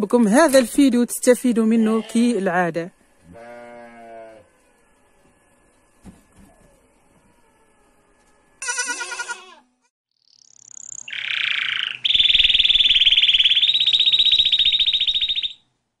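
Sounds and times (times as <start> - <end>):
goat kid bleating: 3.3 - 4.4, 8.6 - 9.7.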